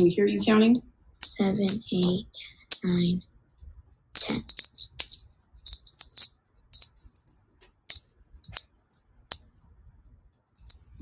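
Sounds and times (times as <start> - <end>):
coins clinking and jingling: 4.2 - 9.6, 10.6 - 11.0
coins clicking when set down: 4.4 - 9.6, 10.6 - 11.0.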